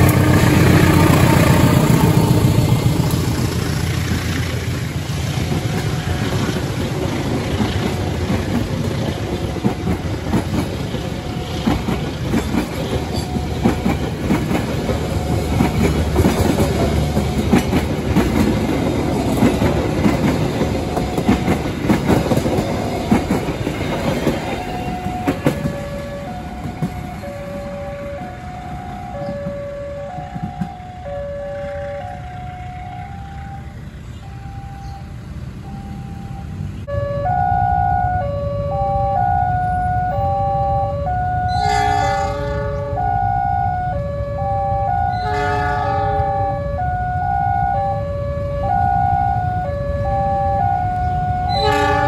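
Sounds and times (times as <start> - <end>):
train wheels rattling on rails: 0.0 - 34.2
level crossing alarm two tones: 24.2 - 52.0.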